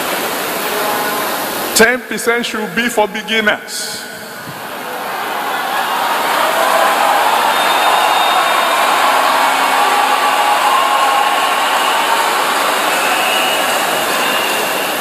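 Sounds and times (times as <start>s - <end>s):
crowd cheering and applauding: 4.3s - 15.0s.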